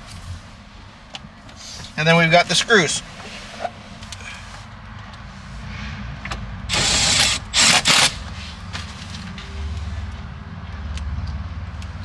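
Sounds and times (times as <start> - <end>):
cordless drill driving screws: 6.7 - 8.2.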